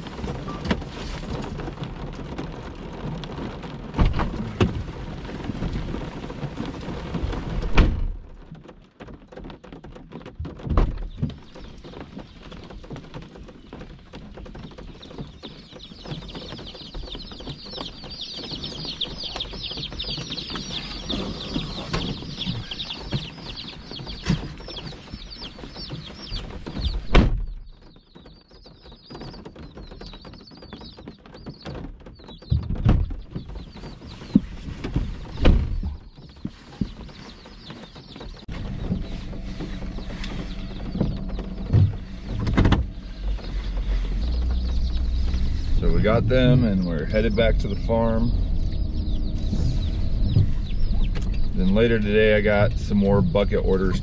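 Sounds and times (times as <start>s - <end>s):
loud thump: 7.6s - 8.2s, 27.0s - 27.6s, 35.3s - 36.0s, 40.8s - 43.0s
chicks peeping: 9.1s - 54.0s.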